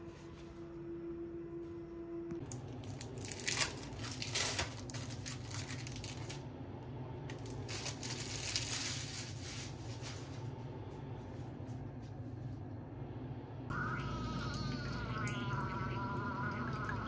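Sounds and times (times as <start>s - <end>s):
steady low hum: 0.0s - 17.0s
crinkling and rustling: 2.4s - 6.4s, 7.3s - 10.6s.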